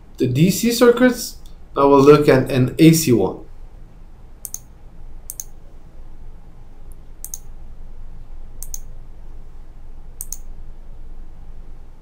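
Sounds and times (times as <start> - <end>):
faint low hum: 0.0 - 12.0
computer mouse clicking: 4.4 - 4.7, 5.3 - 5.6, 7.2 - 7.5, 8.6 - 8.9, 10.2 - 10.5.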